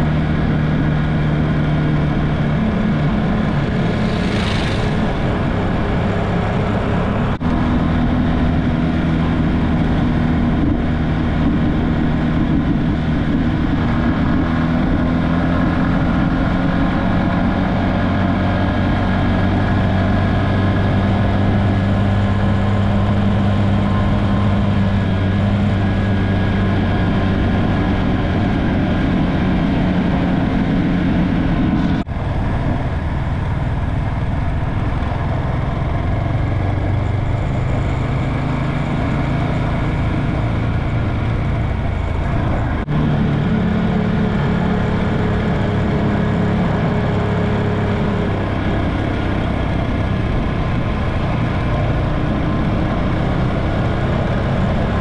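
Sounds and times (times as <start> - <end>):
motorcycle engine cruising: 0.0 - 55.0
road and wind noise: 0.0 - 55.0
brief whoosh: 3.7 - 5.8.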